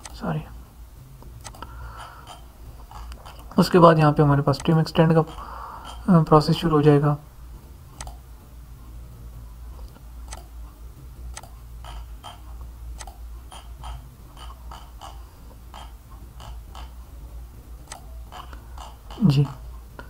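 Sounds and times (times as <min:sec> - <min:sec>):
low steady hum: 0:00.0 - 0:20.0
computer mouse clicking: 0:01.4 - 0:03.5, 0:08.0 - 0:08.2, 0:09.8 - 0:10.5, 0:11.3 - 0:12.4, 0:13.0 - 0:17.0, 0:17.8 - 0:19.6.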